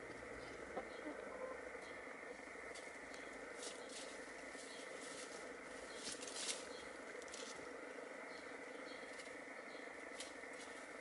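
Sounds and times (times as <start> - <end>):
rustling and scratching in leaves: 2.7 - 7.8, 9.0 - 11.0.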